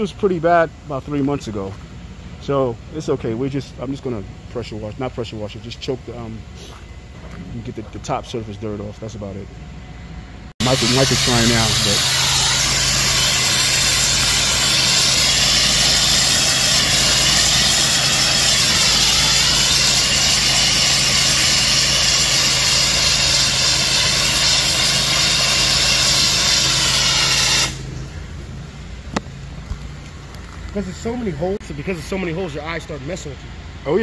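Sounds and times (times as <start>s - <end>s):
pressure washer spraying: 10.6s - 28.0s.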